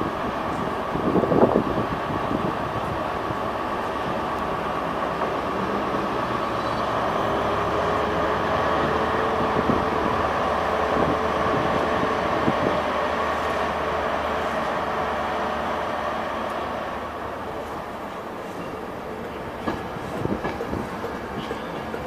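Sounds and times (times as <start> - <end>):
electric locomotive humming: 0.0 - 22.0.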